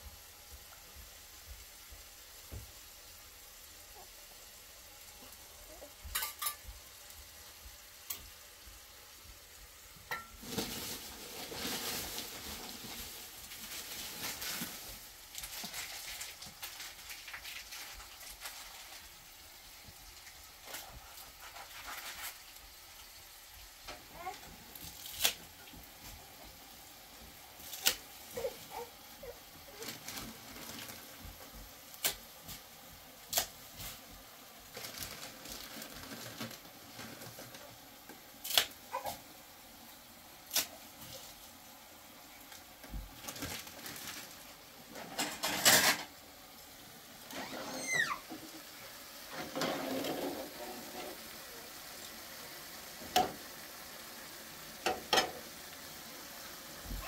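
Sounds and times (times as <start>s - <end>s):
cookware clinking and clattering: 6.0s - 6.7s, 10.1s - 10.5s, 45.0s - 46.1s, 49.3s - 51.2s, 54.8s - 55.4s.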